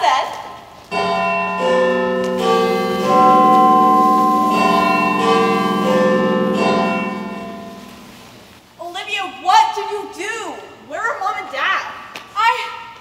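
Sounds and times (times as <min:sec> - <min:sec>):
church bells chiming a tune: 0:00.9 - 0:08.5.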